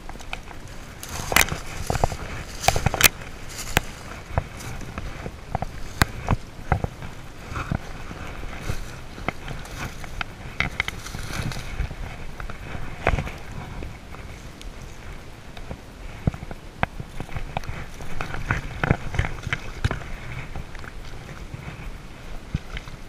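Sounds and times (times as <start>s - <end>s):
footsteps crunching through dry leaves: 0.5s - 15.3s.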